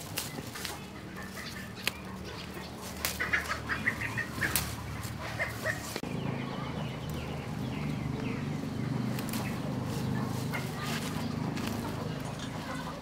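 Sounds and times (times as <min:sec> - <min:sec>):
herb stems snapping and rustling: 0:00.0 - 0:06.1, 0:09.1 - 0:12.6
chickens clucking: 0:00.0 - 0:13.0.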